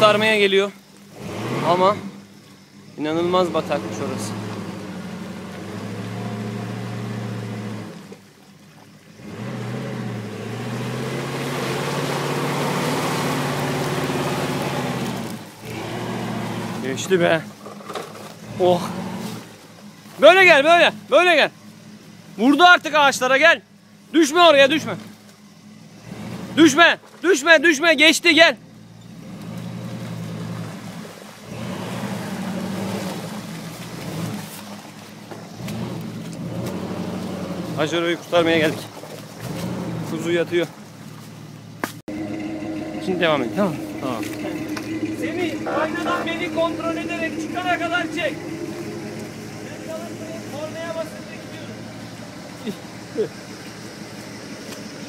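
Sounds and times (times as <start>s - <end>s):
engine revving in mud: 0.0s - 55.0s
tyres churning through mud: 0.0s - 55.0s
truck engine running under load: 41.5s - 55.0s.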